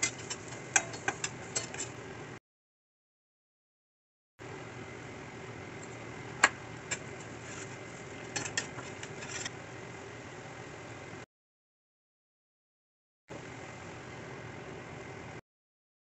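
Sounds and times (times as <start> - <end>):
spoon clinking against frying pan: 0.0 - 1.9.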